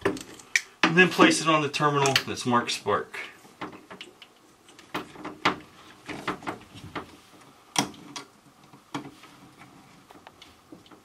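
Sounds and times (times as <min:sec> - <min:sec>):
hands clicking and knocking on wiring: 0:00.0 - 0:01.1, 0:02.0 - 0:02.4, 0:03.5 - 0:11.0.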